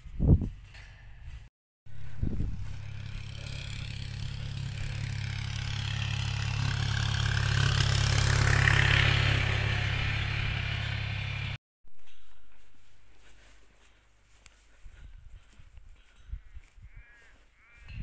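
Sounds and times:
utility vehicle engine passing: 0:01.9 - 0:11.6.

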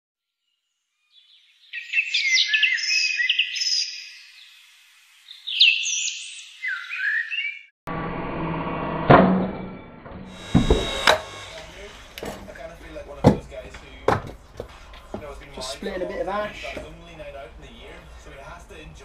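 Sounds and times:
songbird singing: 0:01.0 - 0:07.7
log splitter motor humming: 0:10.3 - 0:13.4.

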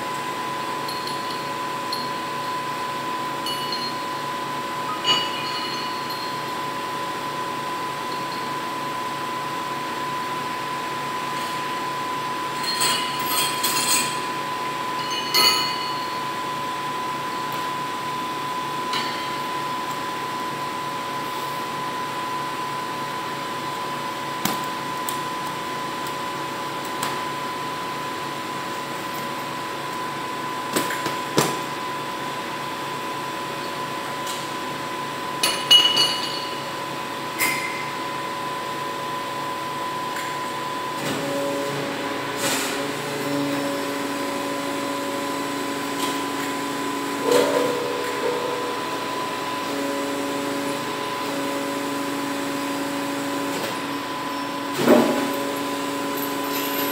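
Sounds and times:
steady hum with high tone: 0:00.0 - 0:56.9
metal hook clinking on weights: 0:03.4 - 0:04.1, 0:04.9 - 0:06.5, 0:12.6 - 0:14.2, 0:15.0 - 0:16.2.

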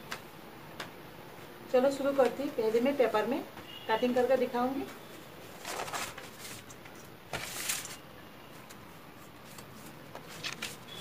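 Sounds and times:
paper rustling and crinkling: 0:05.2 - 0:11.0.

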